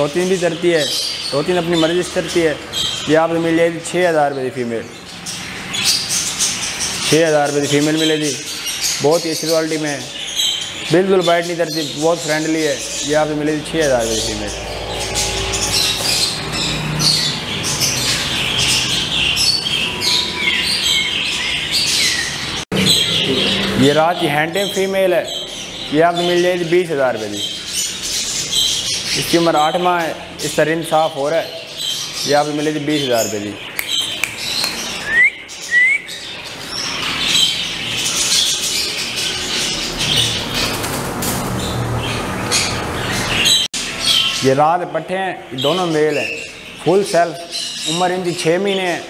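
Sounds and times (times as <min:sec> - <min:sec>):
small birds chirping: 0:00.0 - 0:49.0
loud rising whistles: 0:14.0 - 0:17.3.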